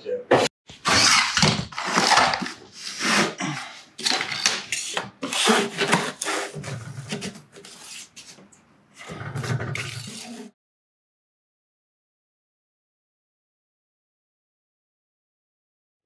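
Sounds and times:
wooden shims scraping and knocking: 0.3 - 10.6.

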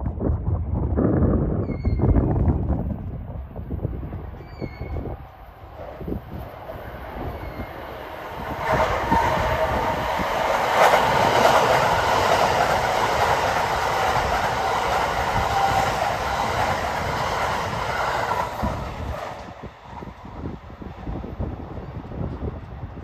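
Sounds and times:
electric train passing: 3.3 - 23.0.

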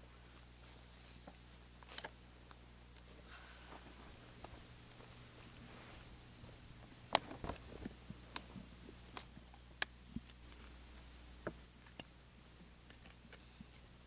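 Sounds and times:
faint bird chirps: 0.5 - 1.5, 3.2 - 6.9, 8.2 - 9.6, 10.5 - 11.4.

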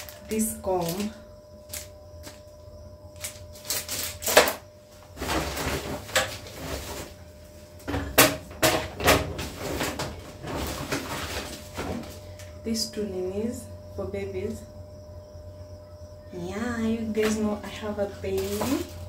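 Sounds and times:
rustling of small items: 0.0 - 2.4, 5.2 - 7.2, 9.0 - 12.2, 18.3 - 19.0.

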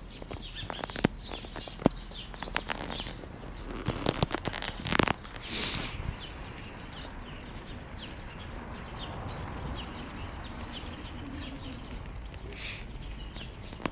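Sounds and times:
small birds chirping: 0.0 - 13.9.

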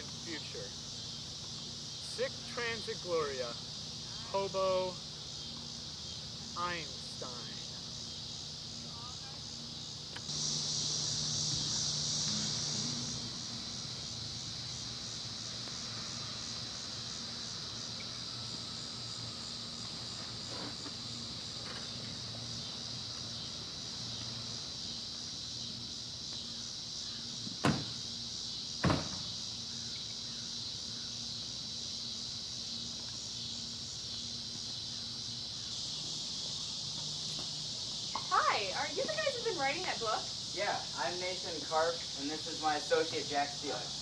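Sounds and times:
crickets chirping: 0.0 - 44.0
sharp knocks: 27.4 - 28.0, 28.8 - 29.3.

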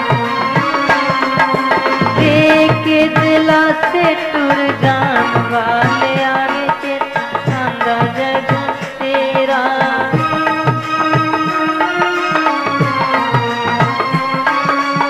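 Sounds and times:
instrumental melody line: 0.0 - 15.0
hand drum beat: 0.5 - 6.2.

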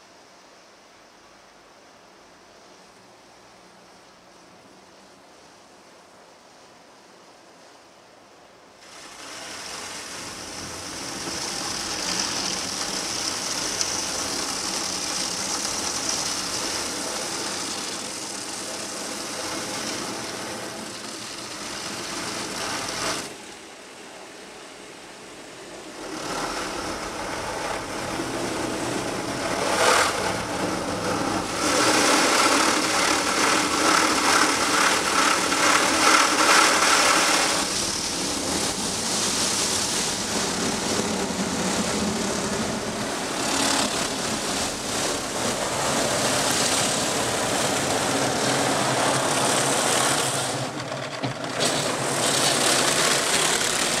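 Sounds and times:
water spray on car: 8.9 - 23.4, 26.0 - 54.0
car wash brushes scrubbing: 26.1 - 54.0.

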